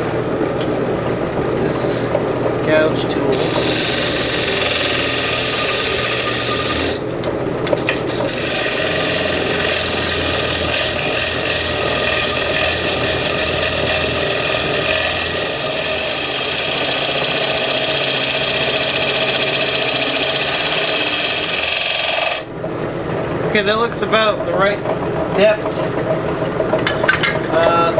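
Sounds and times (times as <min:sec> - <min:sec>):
wood lathe running: 0:00.8 - 0:22.5
gouge scraping wood: 0:03.3 - 0:07.0, 0:07.8 - 0:22.5.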